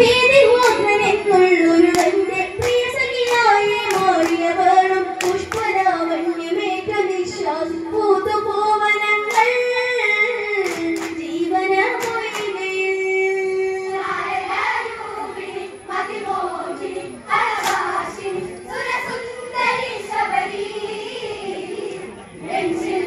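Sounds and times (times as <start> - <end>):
girl singing into a microphone: 0.0 - 15.4
hand claps: 0.6 - 1.0, 1.9 - 4.6, 5.2 - 5.8, 9.3 - 9.6, 10.6 - 11.3, 11.9 - 12.7, 17.6 - 17.9
group singing: 1.6 - 6.3, 13.8 - 23.0.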